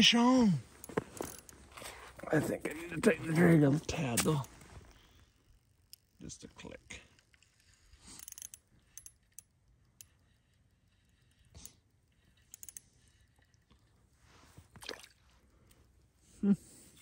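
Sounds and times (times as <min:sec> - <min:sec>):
reel rattle: 0:00.8 - 0:16.2
fishing reel clicks: 0:01.2 - 0:01.6, 0:03.9 - 0:13.9.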